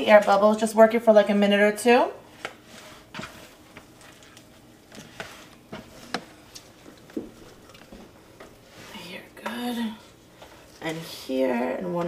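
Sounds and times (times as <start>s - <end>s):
dough squelching and slapping: 2.3s - 8.6s.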